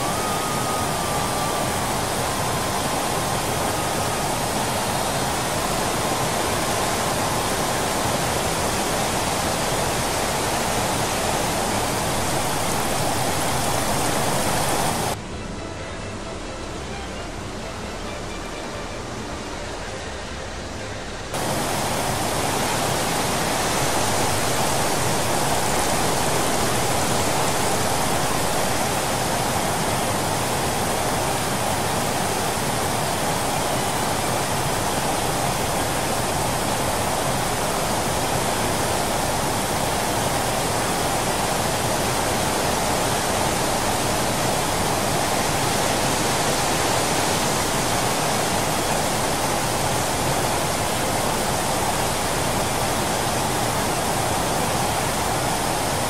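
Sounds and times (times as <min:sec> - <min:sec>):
water rushing through spillway: 0:00.0 - 0:15.2, 0:21.3 - 0:56.0.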